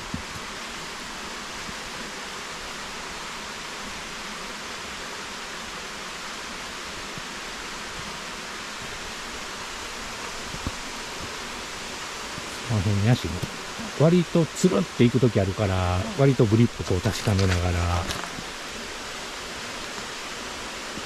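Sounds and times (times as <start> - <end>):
stream and waterfall rushing: 0.0 - 21.0.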